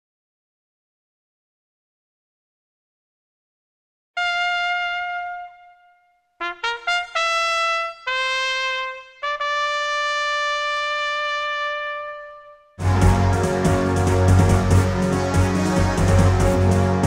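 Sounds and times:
solo trumpet melody: 4.2s - 17.0s.

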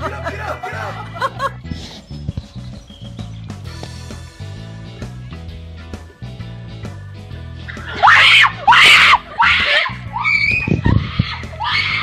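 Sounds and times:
background music: 0.0s - 12.0s
young women screaming: 7.8s - 12.0s.

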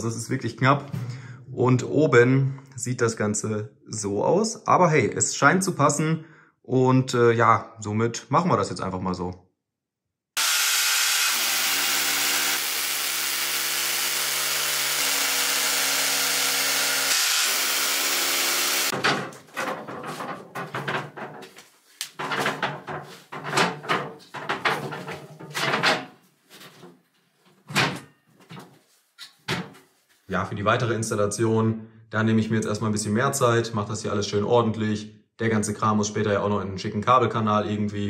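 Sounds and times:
hammer drill boring into brick: 10.4s - 19.0s
knocks and clunks of cabinet: 18.9s - 21.6s, 22.2s - 26.2s, 29.4s - 29.8s.

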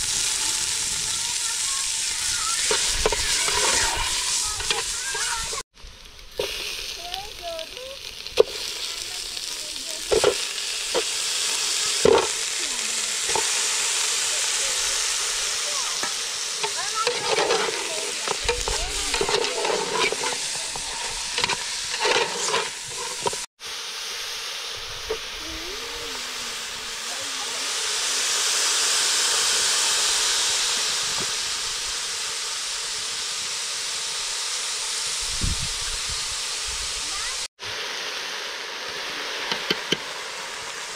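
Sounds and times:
food sizzling in a pan: 0.0s - 40.9s
utensil clinking and scraping: 2.7s - 5.6s, 16.0s - 23.5s.

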